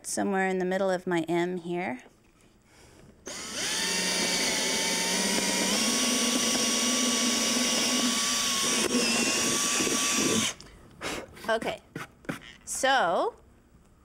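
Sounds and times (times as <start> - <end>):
cordless drill boring wood: 3.3 - 10.6.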